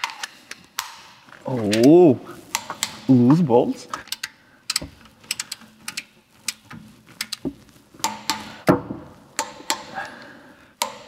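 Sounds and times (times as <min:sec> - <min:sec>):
torque wrench clicking: 0:04.0 - 0:08.5.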